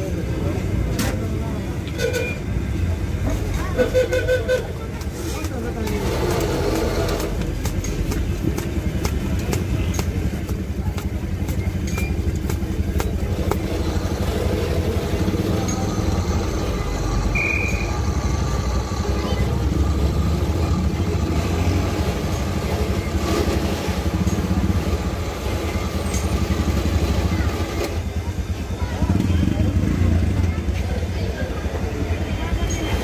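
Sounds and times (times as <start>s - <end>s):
engine running steadily: 0.0s - 33.0s
high beep: 17.3s - 18.0s.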